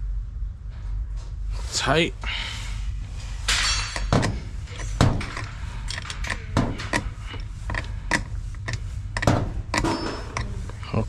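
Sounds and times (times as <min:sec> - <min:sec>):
metal tool clicking on bolts: 0:03.6 - 0:10.8.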